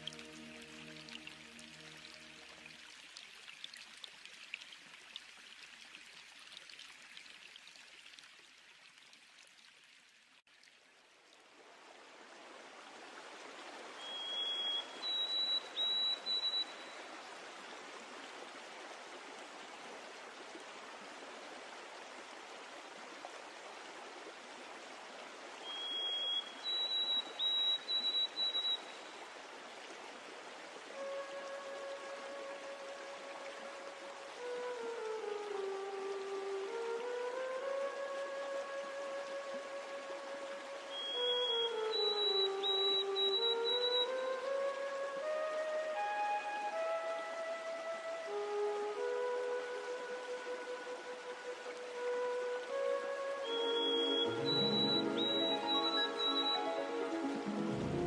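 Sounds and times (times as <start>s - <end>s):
water trickling: 0.0s - 45.6s, 46.7s - 58.0s
water rushing: 0.0s - 58.0s
high whistled call: 14.0s - 17.0s, 25.6s - 29.1s, 39.0s - 58.0s.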